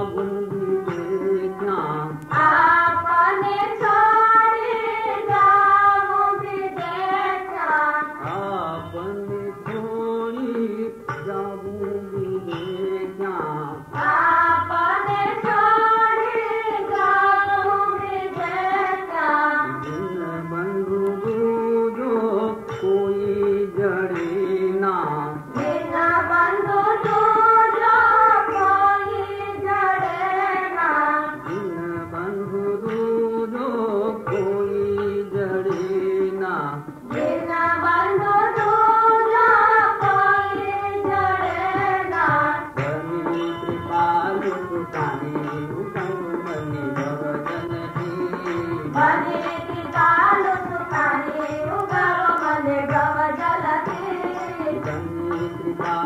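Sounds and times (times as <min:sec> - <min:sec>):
instrumental accompaniment: 0:00.0 - 0:56.0.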